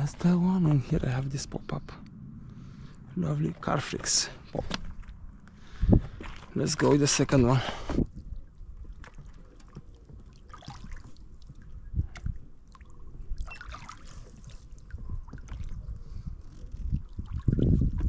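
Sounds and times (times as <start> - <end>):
low rumble: 0.0 - 9.0
oars splashing in water: 3.6 - 18.0.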